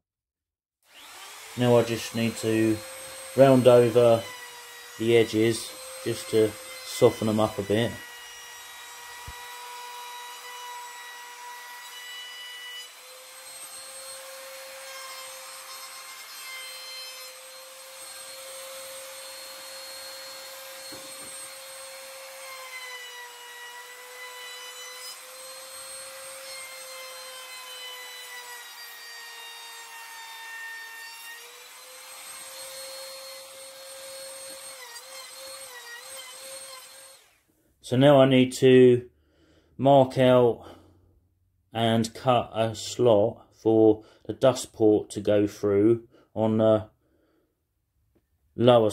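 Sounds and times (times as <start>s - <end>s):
router whining: 0.9s - 37.5s.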